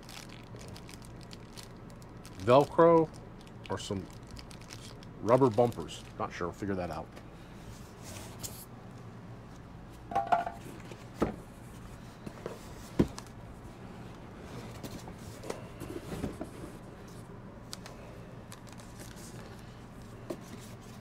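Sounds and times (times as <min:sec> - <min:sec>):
packaging rustling and rubbing: 0:00.0 - 0:06.3, 0:18.5 - 0:19.7.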